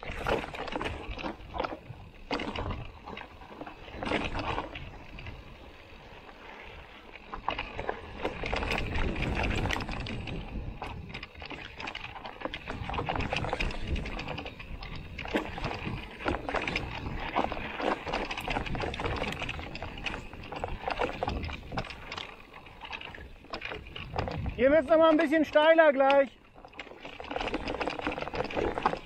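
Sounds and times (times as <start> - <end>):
bike rattling over bumps: 0.0 - 29.0
tyres crunching over stones: 7.2 - 29.0.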